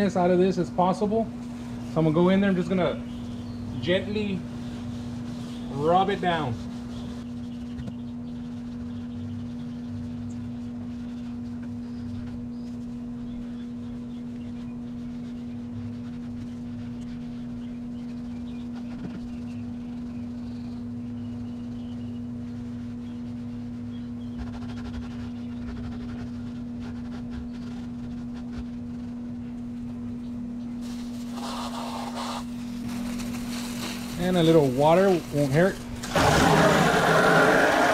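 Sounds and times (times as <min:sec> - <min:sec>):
steady hum: 0:00.0 - 0:37.9
cleaning pad scrubbing: 0:30.8 - 0:37.9.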